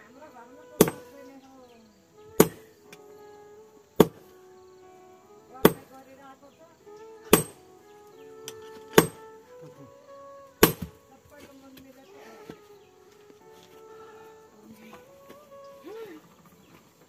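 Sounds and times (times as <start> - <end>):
sledgehammer striking steel on anvil: 0.8 - 1.0, 2.4 - 2.7, 4.0 - 4.2, 5.6 - 5.9, 7.3 - 7.6, 8.9 - 9.2, 10.6 - 11.0.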